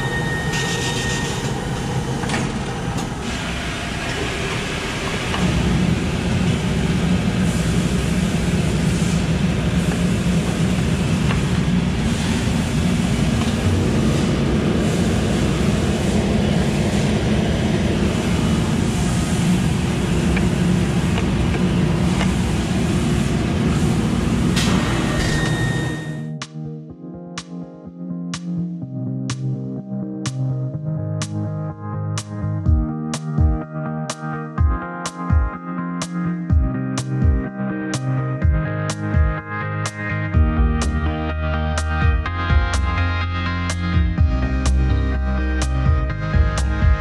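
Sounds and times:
laundry machinery running: 0:00.0 - 0:26.2
music: 0:25.3 - 0:47.0.

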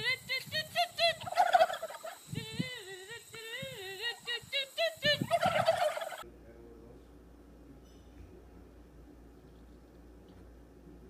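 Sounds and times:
turkeys gobbling: 0:00.8 - 0:02.3, 0:05.1 - 0:06.2.

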